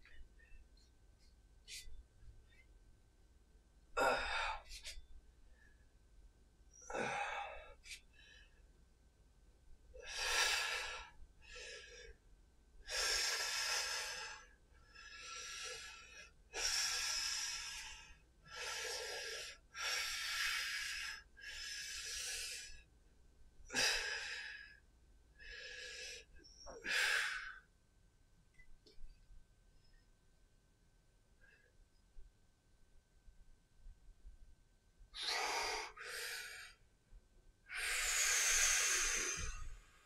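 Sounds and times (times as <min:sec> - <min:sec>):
man breathing hard: 0:37.7 - 0:39.8.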